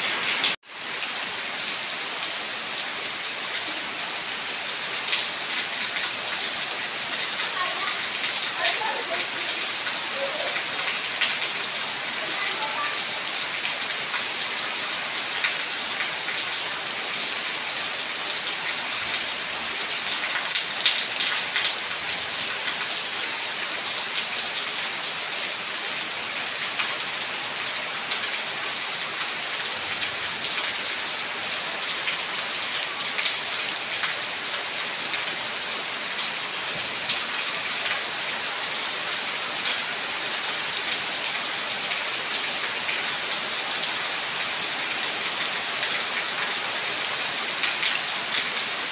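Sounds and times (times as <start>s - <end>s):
heavy rain on stone and puddles: 0.0s - 48.9s.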